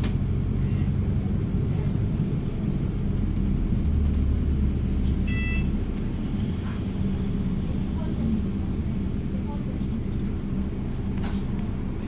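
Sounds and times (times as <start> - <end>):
bus engine rumble: 0.0 - 12.0
short high-pitched beep: 5.2 - 5.7.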